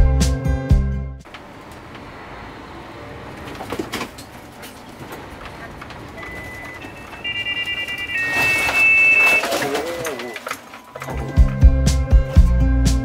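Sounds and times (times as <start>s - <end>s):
electronic warning beeping: 5.3s - 11.1s.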